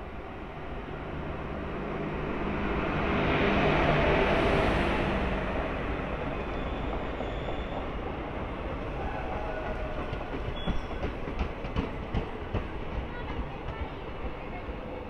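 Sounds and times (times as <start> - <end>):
train wheels rumbling on track: 0.0 - 15.0
wheels clacking over rail joints: 9.2 - 14.6.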